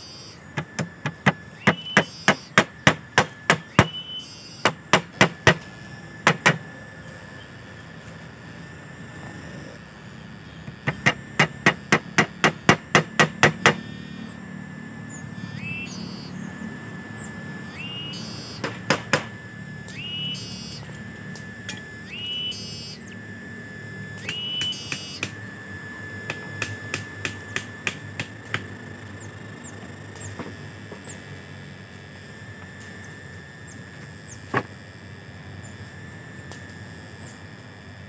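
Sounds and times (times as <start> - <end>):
high steady whistling tone: 0.0 - 7.8, 13.8 - 28.0.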